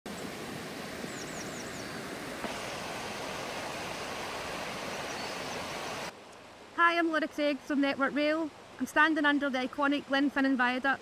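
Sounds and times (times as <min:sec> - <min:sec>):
river rushing over rocks: 0:00.1 - 0:06.7
small bird calling: 0:01.0 - 0:02.0, 0:04.8 - 0:06.1.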